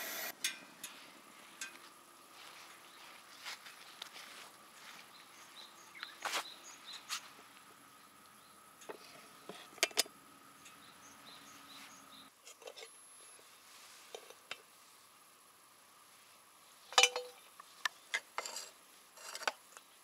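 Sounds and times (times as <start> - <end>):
high chirping: 10.6 - 12.3
cookware and utensils clinking: 16.9 - 17.4.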